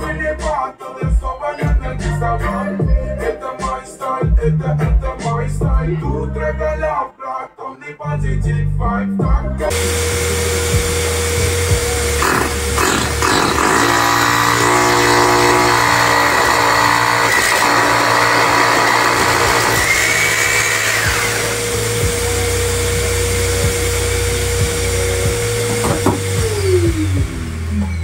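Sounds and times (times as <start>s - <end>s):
background music: 0.0s - 28.0s
electric drill boring into wall: 9.7s - 28.0s
vacuum drawing dust: 9.7s - 28.0s.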